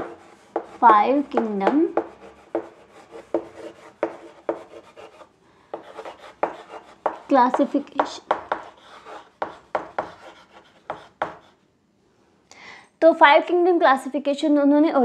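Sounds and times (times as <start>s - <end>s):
chalk tapping and scraping on board: 0.0s - 11.6s.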